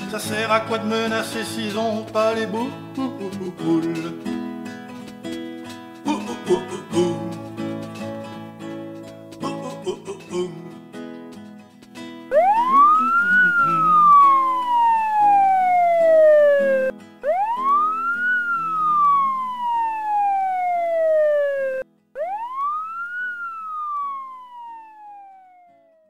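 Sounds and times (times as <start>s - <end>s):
music playing: 12.2s - 25.5s
siren wailing: 12.3s - 26.0s.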